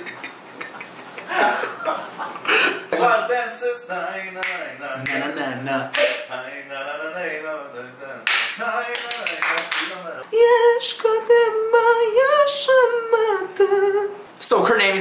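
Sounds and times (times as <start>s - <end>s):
man singing a cappella: 3.0s - 14.3s.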